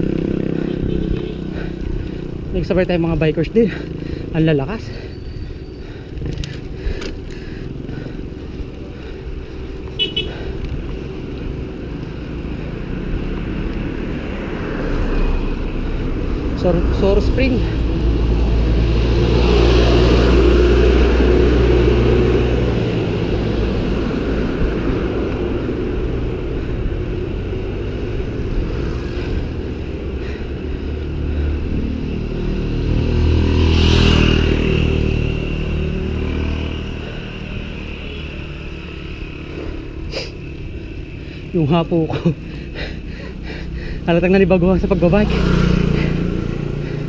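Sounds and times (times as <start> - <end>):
bicycle road noise on asphalt: 0.0 - 47.0
motor vehicles passing: 0.0 - 47.0
wind rushing over microphone: 17.8 - 30.0.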